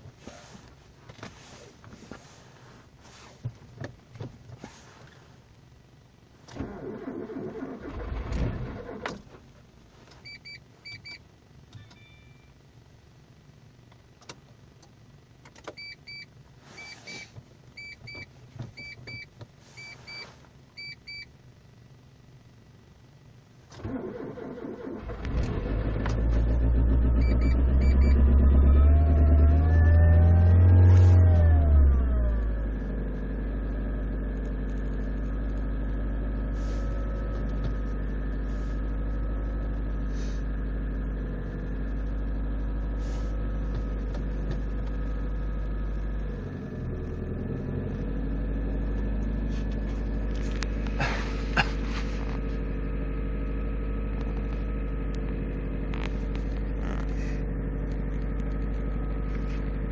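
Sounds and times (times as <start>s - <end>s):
car engine cranking and starting: 6.4s - 10.3s, 23.6s - 59.9s
short electronic beeps: 11.8s - 12.6s, 15.8s - 21.3s, 27.2s - 28.2s.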